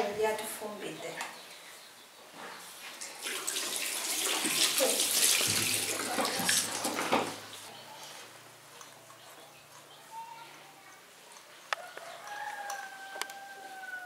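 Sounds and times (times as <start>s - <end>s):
tap water running into basin: 3.0s - 7.6s
water splashing over hands: 3.2s - 7.2s.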